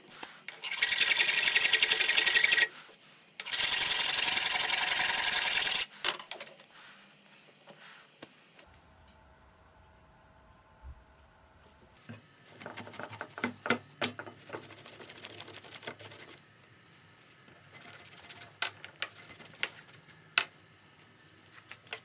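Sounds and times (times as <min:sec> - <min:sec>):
cloth wiping wood: 0:06.7 - 0:08.2, 0:14.4 - 0:18.3.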